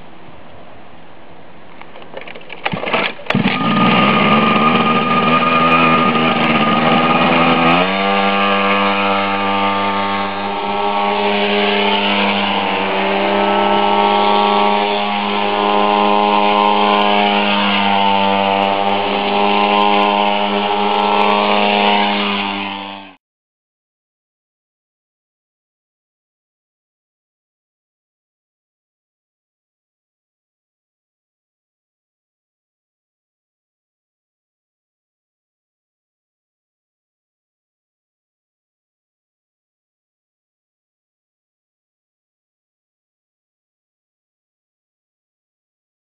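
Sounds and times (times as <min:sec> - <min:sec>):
small engine sputtering and running: 0:02.2 - 0:23.2.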